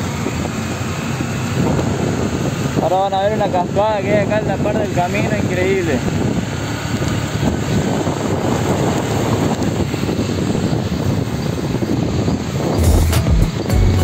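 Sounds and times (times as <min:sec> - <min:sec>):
motorcycle engine: 0:00.0 - 0:14.0
rushing wind noise: 0:00.0 - 0:14.0.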